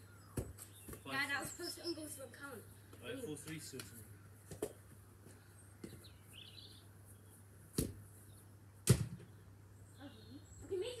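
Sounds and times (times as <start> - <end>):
football being kicked: 0.3 - 1.0, 7.7 - 8.0, 8.8 - 9.3.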